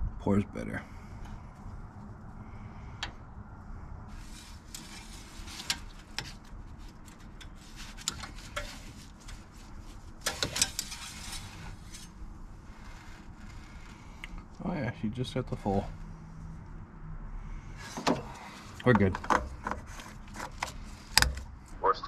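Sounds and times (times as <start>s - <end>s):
dipstick clicking and scraping: 4.3s - 12.2s, 18.0s - 21.5s.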